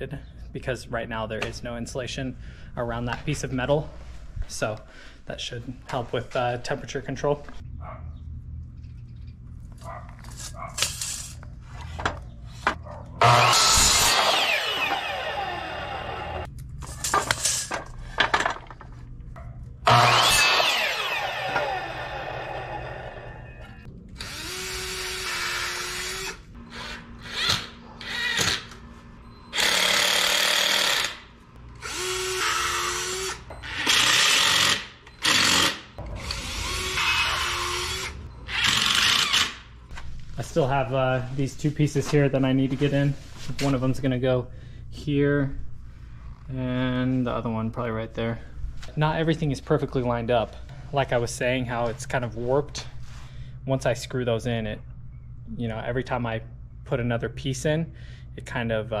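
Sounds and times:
cordless drill driving screws: 0:13.2 - 0:16.4, 0:19.9 - 0:22.3, 0:24.2 - 0:28.7, 0:29.5 - 0:31.2, 0:31.8 - 0:39.6
miter saw cutting wood: 0:13.2 - 0:16.5, 0:19.8 - 0:28.7, 0:31.8 - 0:39.6
saw blade spinning down: 0:13.2 - 0:16.5, 0:19.8 - 0:26.4.

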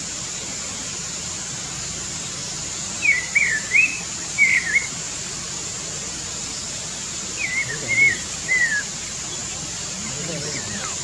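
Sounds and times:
steady high hiss: 0:00.0 - 0:11.0
songbird warbling chirps: 0:02.2 - 0:05.0, 0:06.3 - 0:11.0.

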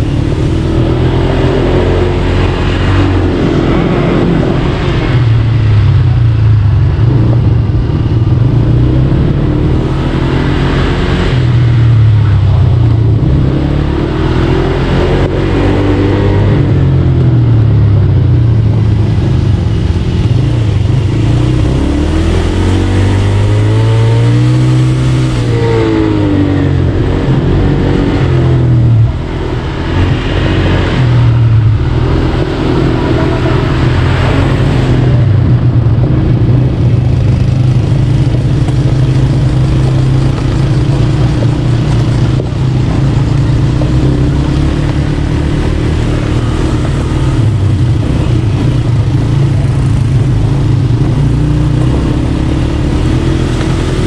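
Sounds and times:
buggy engine revving: 0:00.0 - 0:54.0.

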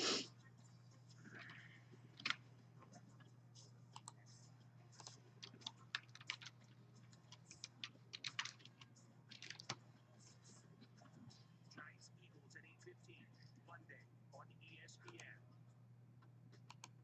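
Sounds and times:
typing on keyboard: 0:05.0 - 0:09.8.

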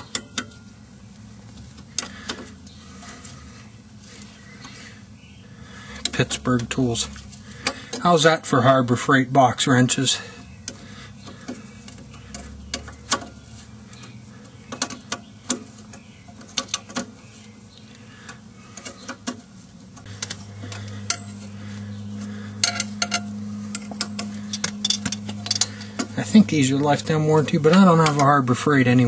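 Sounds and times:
low steady hum: 0:00.0 - 0:29.0
wrench clinking on metal: 0:22.6 - 0:26.1.

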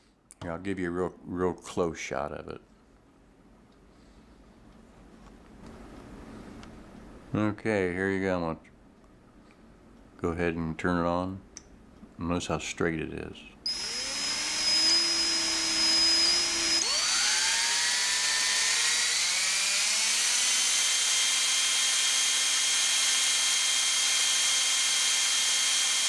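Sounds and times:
electric drill whining: 0:13.7 - 0:26.0.

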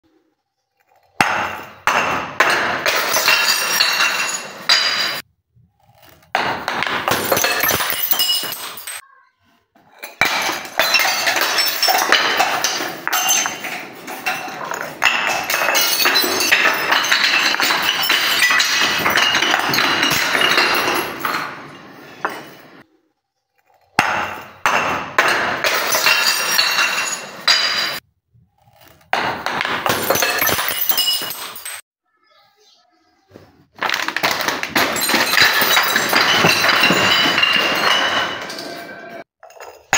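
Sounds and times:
glass bottles clattering down stairs: 0:01.2 - 0:05.3, 0:06.2 - 0:09.0, 0:09.8 - 0:22.8, 0:24.0 - 0:28.0, 0:29.0 - 0:31.8, 0:33.8 - 0:39.9
glass breaking: 0:01.2 - 0:05.3, 0:06.0 - 0:09.0, 0:09.9 - 0:22.8, 0:24.0 - 0:28.0, 0:28.8 - 0:31.8, 0:33.8 - 0:39.9
beads scattering on steps: 0:06.3 - 0:09.0, 0:33.8 - 0:38.8.

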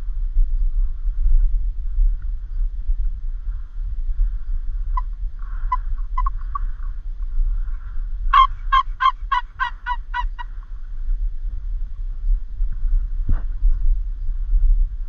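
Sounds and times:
wind rumble on microphone: 0:00.0 - 0:15.0
turkey yelping: 0:05.0 - 0:06.8, 0:08.3 - 0:10.5
turkey clucking: 0:05.0 - 0:06.9, 0:08.3 - 0:10.6.

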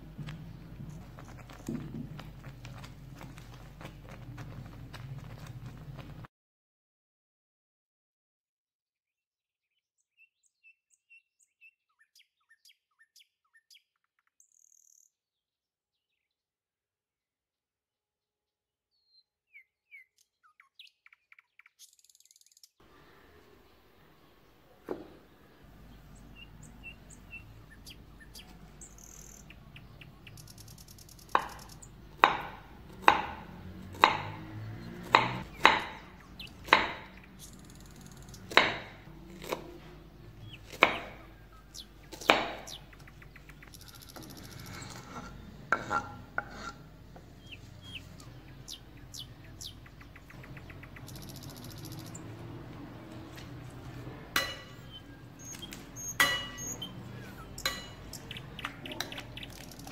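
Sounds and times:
quiet handling sounds: 0:00.0 - 0:06.3.

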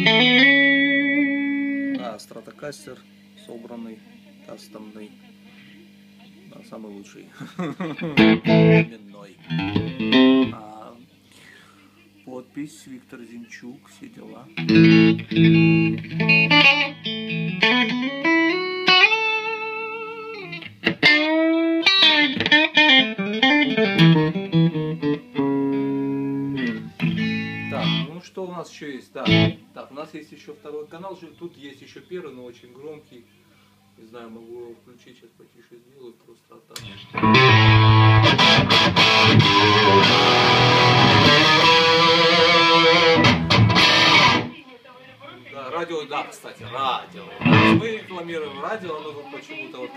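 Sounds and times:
clean electric guitar playing: 0:00.0 - 0:02.1, 0:08.0 - 0:10.6, 0:14.5 - 0:28.1, 0:29.2 - 0:29.6, 0:36.8 - 0:44.6, 0:47.3 - 0:48.1.

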